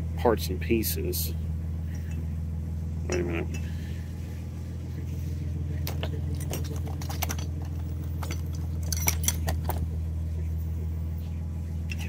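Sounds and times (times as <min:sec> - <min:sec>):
steady low hum: 0:00.0 - 0:12.0
small metal parts clinking: 0:05.8 - 0:10.0.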